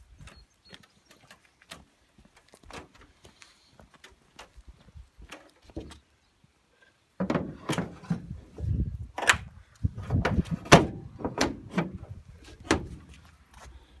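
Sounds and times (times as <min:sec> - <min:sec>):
aircraft wing knocks and clunks: 0:10.0 - 0:13.1.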